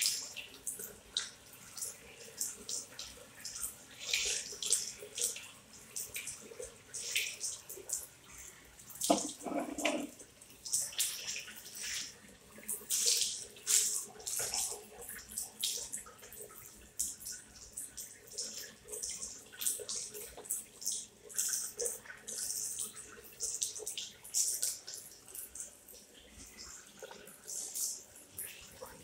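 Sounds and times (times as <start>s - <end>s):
tap water splashing into basin: 9.0s - 12.2s.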